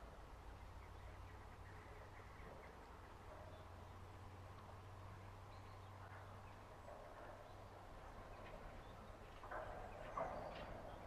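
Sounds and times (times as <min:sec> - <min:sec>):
wagon wheels and couplings clanking: 0:05.4 - 0:11.0.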